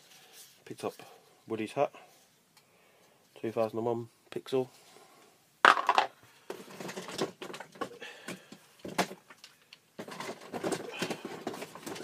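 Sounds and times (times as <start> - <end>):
plastic toys clicking and rustling: 8.8 - 12.0.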